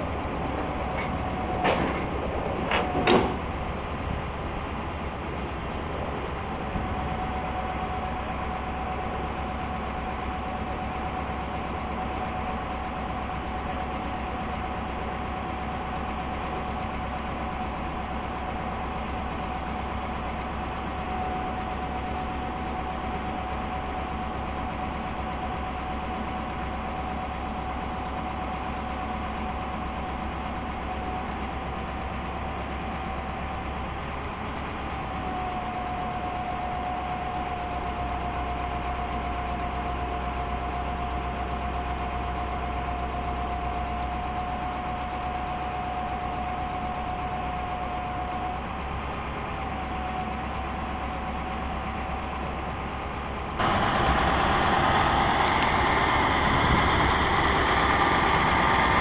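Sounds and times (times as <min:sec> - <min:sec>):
diesel engine drone: 0:00.0 - 0:59.0
hydraulic high whine: 0:53.6 - 0:59.0.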